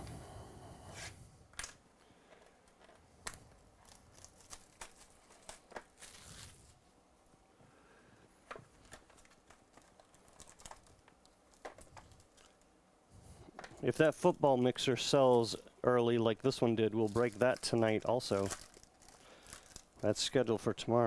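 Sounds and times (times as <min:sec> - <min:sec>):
faint crackles and clicks: 0:01.5 - 0:07.4, 0:08.3 - 0:12.8, 0:16.4 - 0:20.4
plastic wrap tearing and crinkling: 0:02.6 - 0:06.8, 0:08.7 - 0:12.7, 0:16.4 - 0:20.4.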